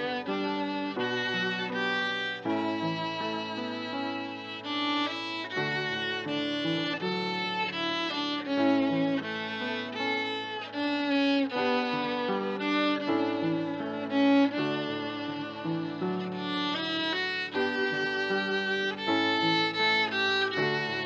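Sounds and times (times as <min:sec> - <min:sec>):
violin playing slow melody: 0:00.0 - 0:21.0.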